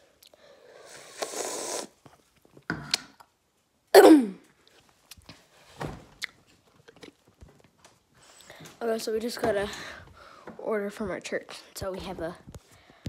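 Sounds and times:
girl's throaty sound: 0:04.0 - 0:04.4.

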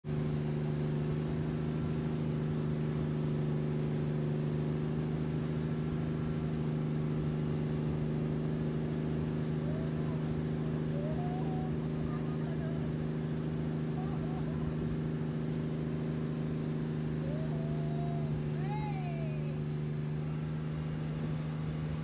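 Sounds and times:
boat engine humming: 0:00.0 - 0:22.0.

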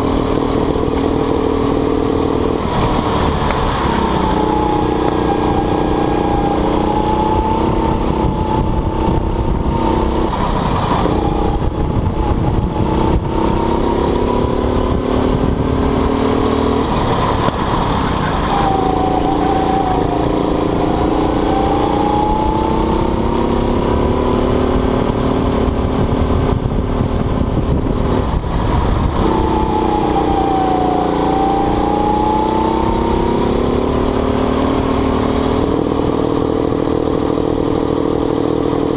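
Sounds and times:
low rumble: 0:00.0 - 0:32.0
go-kart engine revving: 0:00.0 - 0:38.9.

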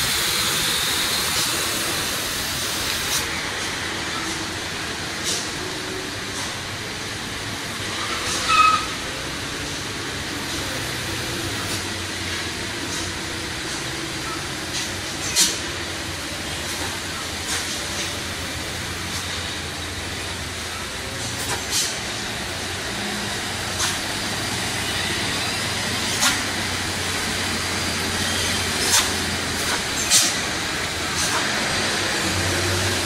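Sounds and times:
wet tyre hiss: 0:00.0 - 0:04.0, 0:21.3 - 0:33.0
vehicle engines droning: 0:00.0 - 0:33.0.

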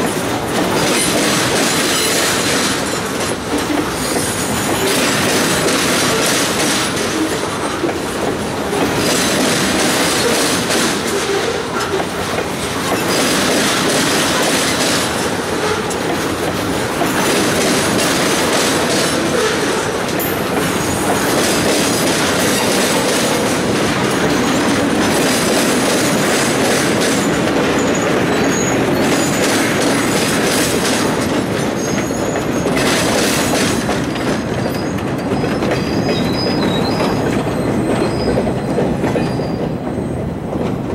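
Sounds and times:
train wheels rolling on rails: 0:00.0 - 0:40.9
high wheel squeals: 0:27.2 - 0:30.1, 0:31.6 - 0:32.8, 0:34.6 - 0:40.4.

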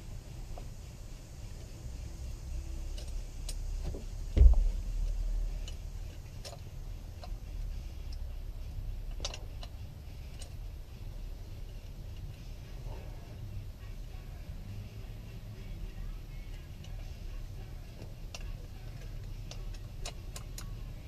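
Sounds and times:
heavy thump: 0:03.9 - 0:05.1
small clicks and taps: 0:18.0 - 0:20.8.

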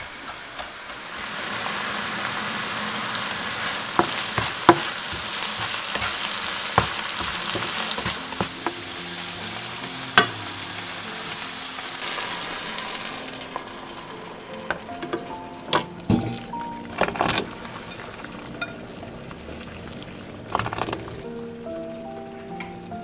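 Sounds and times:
onions sizzling in oil: 0:00.0 - 0:23.0
spatula tapping and scraping pan: 0:03.9 - 0:08.9, 0:09.8 - 0:10.4.

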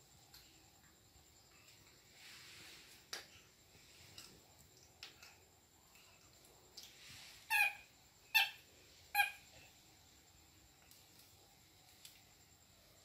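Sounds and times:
baby monkey squeaking: 0:07.5 - 0:08.6, 0:09.2 - 0:09.4
faint clicks: 0:10.8 - 0:12.3.

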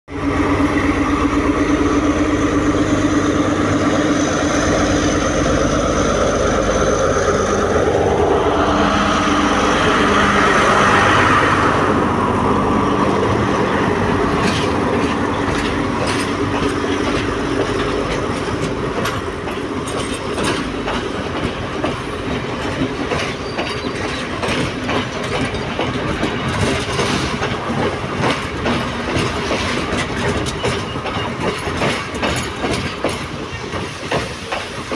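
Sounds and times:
diesel train engine drone: 0:00.1 - 0:34.9
train wheels clacking over rail joints: 0:12.8 - 0:34.9.

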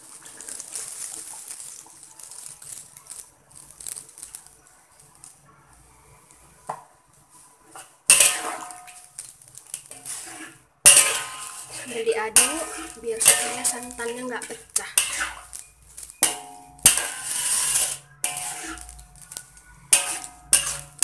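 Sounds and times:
metal spatula scraping wok: 0:07.4 - 0:21.0.

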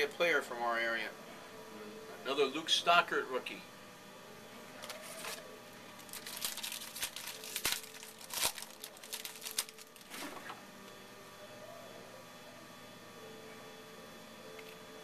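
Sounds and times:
foil wrapper crinkling: 0:04.8 - 0:10.3.

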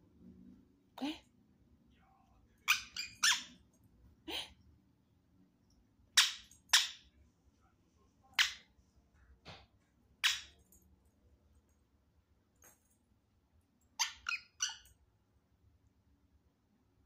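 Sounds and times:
parakeet squawking: 0:02.6 - 0:03.6, 0:06.2 - 0:07.0, 0:14.0 - 0:14.9.

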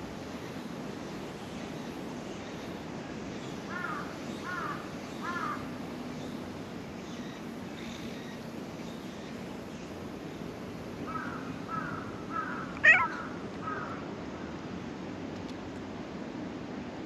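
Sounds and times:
cat mewing: 0:12.5 - 0:13.3.

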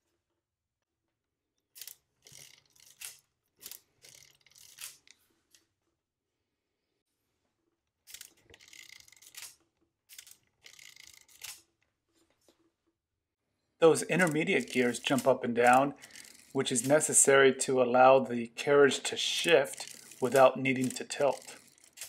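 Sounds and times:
mechanical calculator clicking: 0:01.8 - 0:05.1, 0:08.1 - 0:11.7, 0:13.9 - 0:17.4, 0:18.9 - 0:22.0.

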